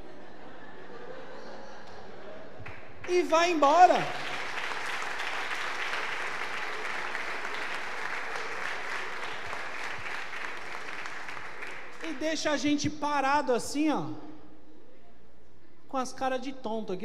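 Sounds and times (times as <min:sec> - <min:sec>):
audience applauding: 0:02.6 - 0:12.3.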